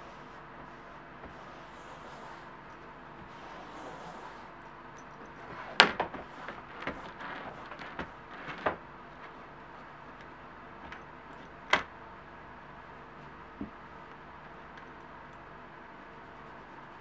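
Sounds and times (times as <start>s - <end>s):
cloth rubbing on leather: 0.0s - 2.6s, 3.2s - 4.5s.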